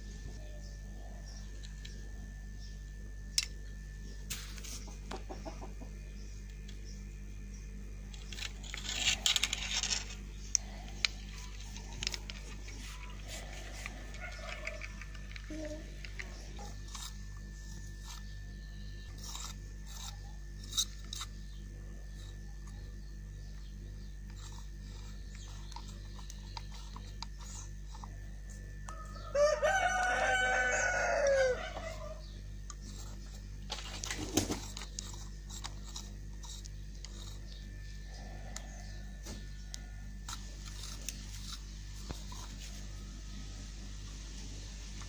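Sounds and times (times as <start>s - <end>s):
low hum: 0.0s - 45.0s
small clicks: 13.8s - 16.4s
rooster crowing: 28.8s - 32.3s.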